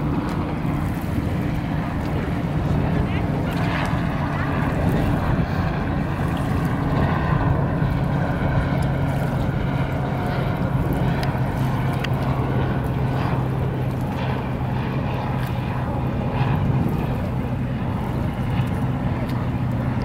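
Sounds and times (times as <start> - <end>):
distant engine drone: 0.0 - 20.0
faint light ticks: 11.0 - 12.3.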